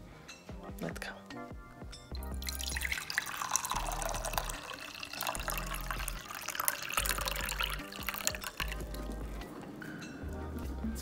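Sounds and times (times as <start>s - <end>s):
tea pouring into a mug: 2.4s - 9.4s.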